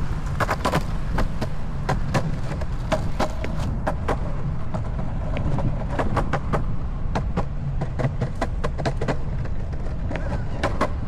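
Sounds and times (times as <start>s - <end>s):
longboard wheels rumbling on concrete: 0.0s - 11.0s
wheels clacking over joints: 0.0s - 11.0s.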